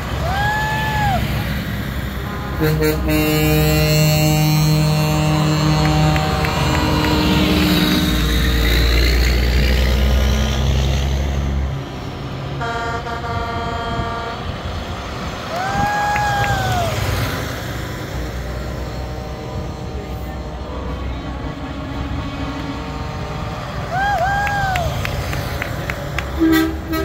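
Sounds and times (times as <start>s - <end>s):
truck diesel engine rumbling: 0.0s - 27.0s
multi-note air horn: 2.2s - 8.8s, 12.6s - 14.4s, 26.3s - 27.0s
single-note truck horn: 2.2s - 8.9s, 12.6s - 14.6s, 26.3s - 27.0s.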